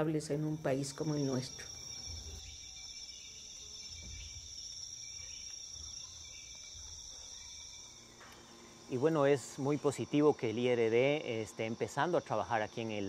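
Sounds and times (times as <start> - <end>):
insect chorus drone: 0.0 - 13.0.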